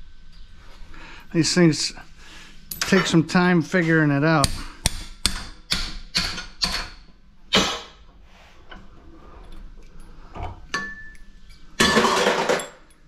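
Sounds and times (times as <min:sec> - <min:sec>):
metal clattering: 0:08.7 - 0:13.0
light metal clinks: 0:09.4 - 0:11.8.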